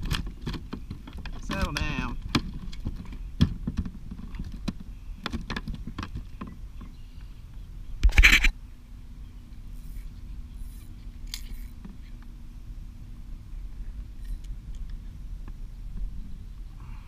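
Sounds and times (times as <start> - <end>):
clicks and scrapes on plastic kayak: 0.0 - 7.3, 8.0 - 8.5.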